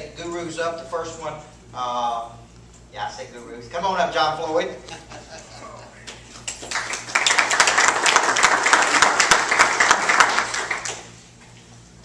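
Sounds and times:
audience applauding: 6.4s - 11.1s.

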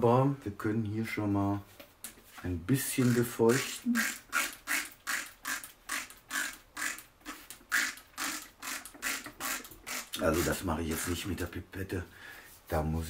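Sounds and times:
spray bottle hissing: 3.6s - 11.1s.

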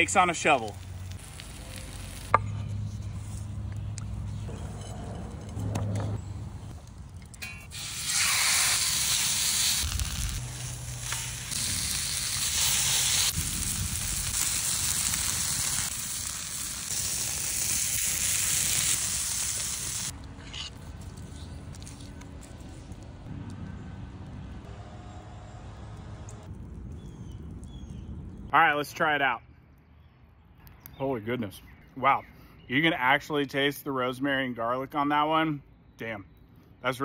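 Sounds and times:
steak sizzling: 0.2s - 2.4s, 7.7s - 20.1s.

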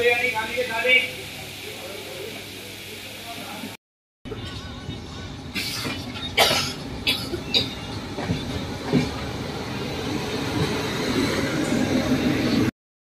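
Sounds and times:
train coach rattling: 4.4s - 12.7s.

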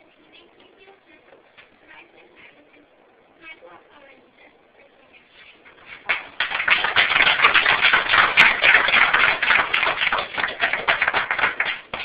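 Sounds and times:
crowd applauding: 6.0s - 12.0s.

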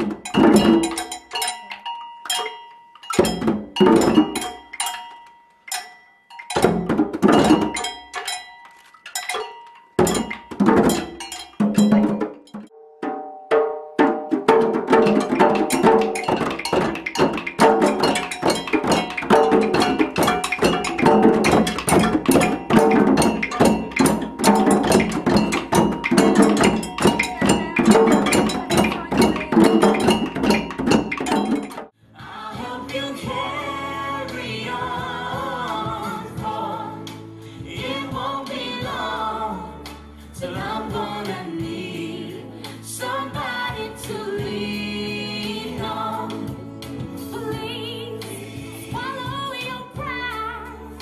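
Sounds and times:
djembe hand drums: 0.0s - 1.2s, 3.2s - 4.6s, 6.6s - 8.0s, 10.0s - 31.9s.

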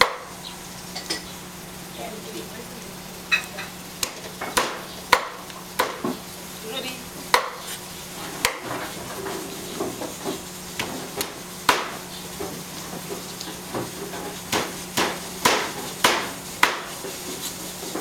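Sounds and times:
cleaver chopping on wooden block: 4.0s - 6.2s, 7.3s - 7.6s, 8.4s - 8.7s, 10.8s - 12.0s, 14.5s - 16.9s.

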